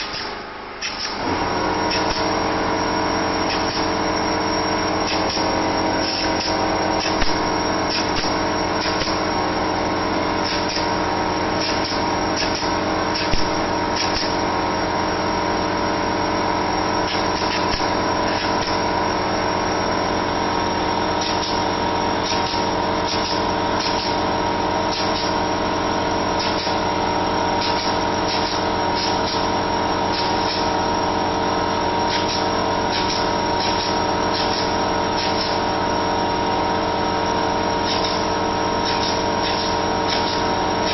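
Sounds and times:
air compressor running: 0.0s - 40.9s
pneumatic clip gun firing: 0.0s - 40.9s.

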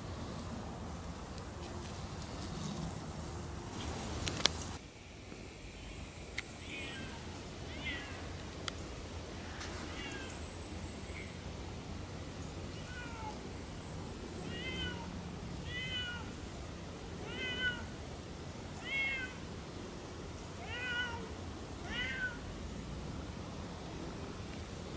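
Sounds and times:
cat meowing: 6.6s - 8.2s, 12.7s - 13.4s, 14.4s - 16.3s, 17.2s - 17.9s, 18.8s - 19.4s, 20.6s - 22.4s.

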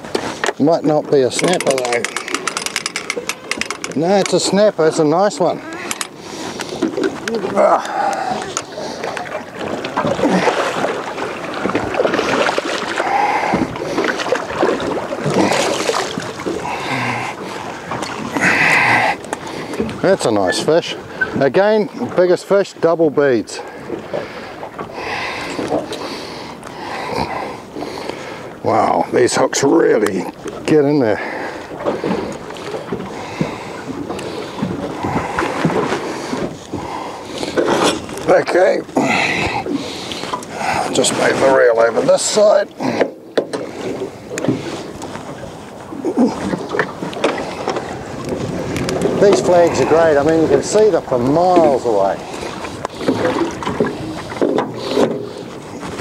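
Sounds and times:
water slapping against boat: 0.0s - 56.0s
wind on microphone: 33.4s - 37.0s, 43.9s - 51.1s
knocks on boat: 43.0s - 43.7s.

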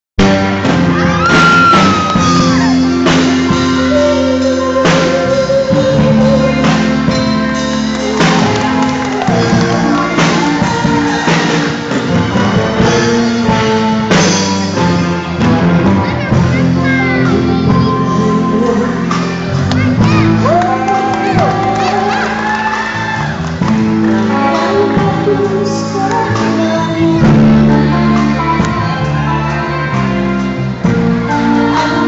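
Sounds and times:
loud instrumental music: 0.2s - 32.0s
woman singing into a microphone: 24.3s - 29.8s, 31.3s - 32.0s.

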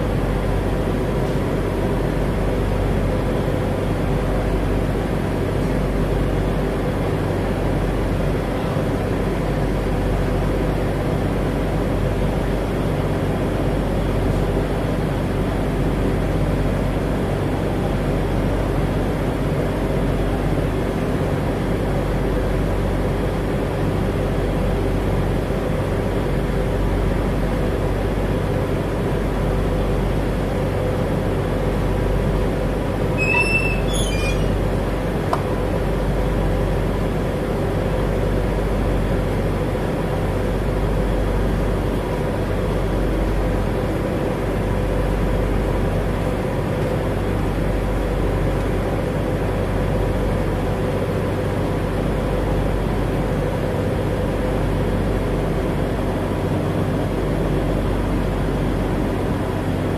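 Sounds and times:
ferry engines droning: 0.0s - 59.9s
brief high squeaks: 33.1s - 34.7s.

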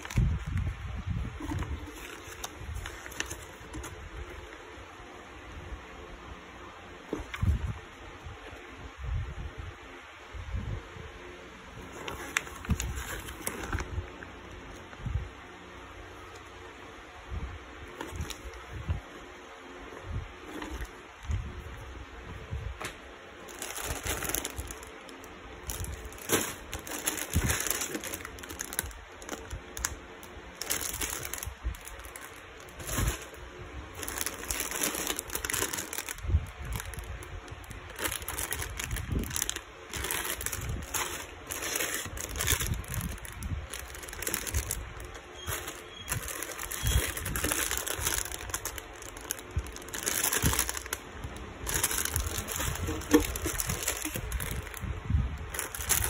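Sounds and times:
plastic bags crinkling: 0.0s - 4.6s, 11.8s - 14.8s, 17.9s - 18.8s, 20.4s - 21.3s, 23.4s - 56.0s.

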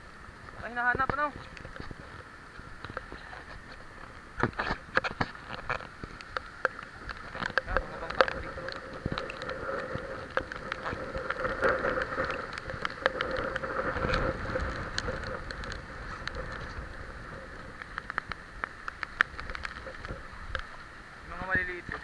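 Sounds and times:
heavy rain falling: 0.0s - 22.0s
raindrops ticking nearby: 0.0s - 22.0s
wind gust: 6.6s - 18.6s.

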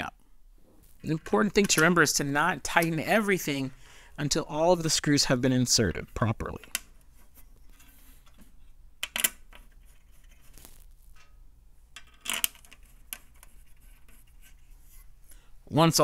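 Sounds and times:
soft rustle: 0.6s - 1.4s, 9.6s - 11.2s, 12.8s - 15.5s
metal screws clicking: 12.0s - 14.2s.

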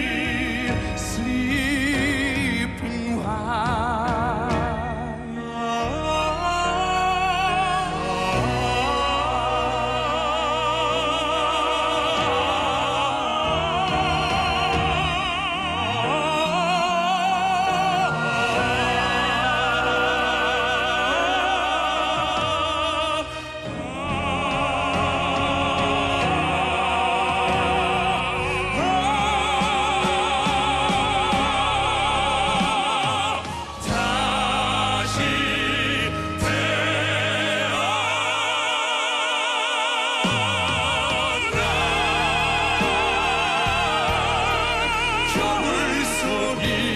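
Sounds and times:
backing music: 0.0s - 46.9s
male vocal quartet singing operatically: 0.0s - 46.9s.

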